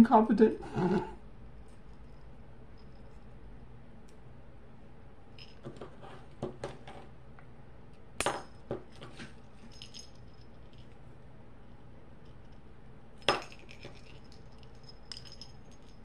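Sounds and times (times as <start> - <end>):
key ring metal clinks: 13.2 - 16.0.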